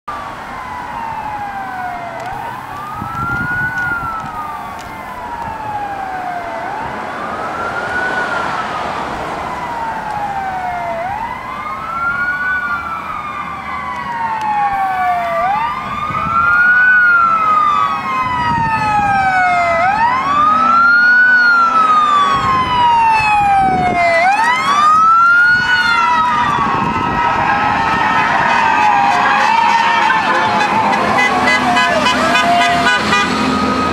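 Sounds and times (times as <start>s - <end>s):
emergency vehicle siren wailing: 0.1s - 33.9s
higher siren with faster sweeps: 0.1s - 33.9s.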